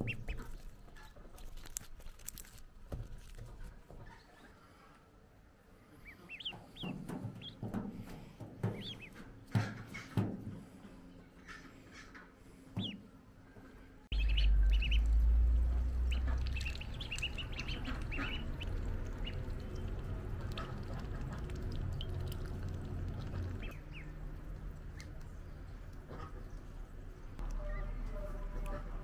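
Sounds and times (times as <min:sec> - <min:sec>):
ducklings peeping: 0:00.0 - 0:01.6, 0:06.0 - 0:10.2, 0:11.4 - 0:13.1, 0:14.1 - 0:29.0
steady low rumble: 0:14.1 - 0:29.0.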